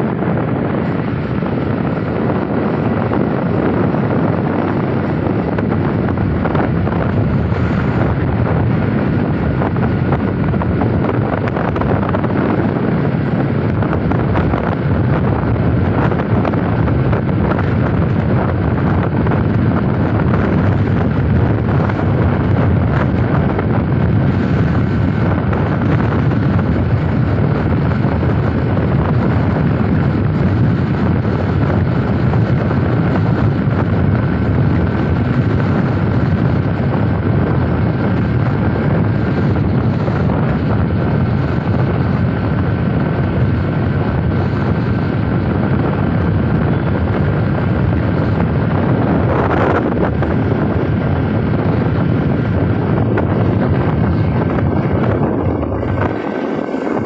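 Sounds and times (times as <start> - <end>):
road noise: 0.0 - 57.0
wind buffeting microphone: 0.0 - 57.0.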